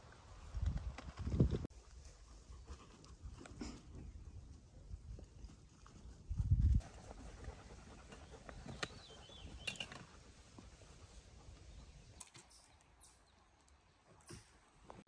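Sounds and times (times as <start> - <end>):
bird chirp: 7.6 - 14.0.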